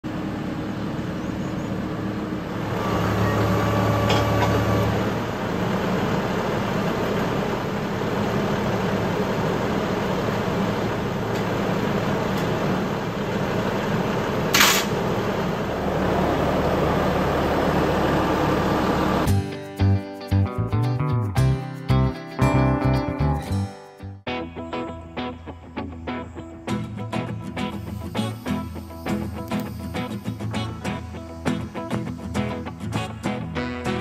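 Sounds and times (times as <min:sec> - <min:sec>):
tractor diesel engine running: 0:00.0 - 0:19.4.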